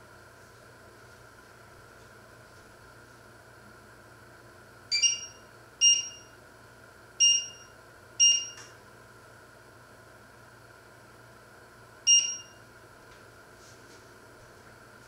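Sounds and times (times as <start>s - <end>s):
hob touch controls beeping: 4.9s - 6.2s, 7.2s - 7.6s, 8.2s - 8.7s, 12.1s - 12.6s.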